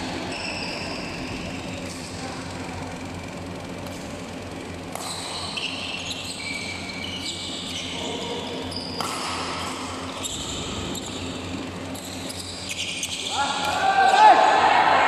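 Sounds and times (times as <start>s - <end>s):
steady low hum: 0.0s - 15.0s
shoes squeaking on court floor: 0.1s - 2.2s, 5.0s - 13.4s
racket hitting shuttlecock: 4.9s - 5.6s, 9.0s - 10.0s.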